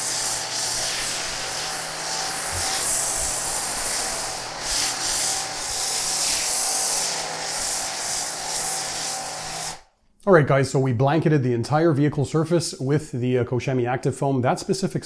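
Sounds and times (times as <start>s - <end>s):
pressure washer spraying foam: 0.0s - 9.8s.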